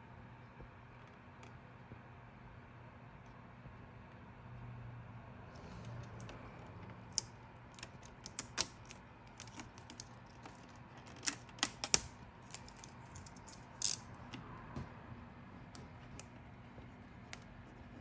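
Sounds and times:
vinyl film crackling and clicking: 6.0s - 14.4s.

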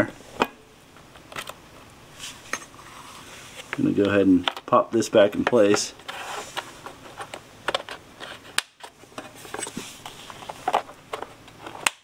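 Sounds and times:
plastic parts clicking and scraping: 3.6s - 12.0s.

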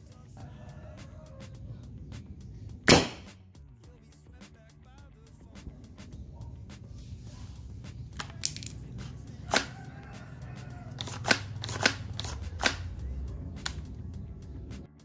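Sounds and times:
paper rifle handle clicking: 8.2s - 8.8s, 11.0s - 12.9s.

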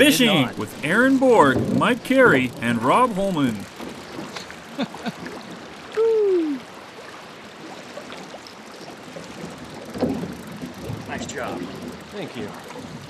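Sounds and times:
river water rushing: 0.0s - 8.4s.

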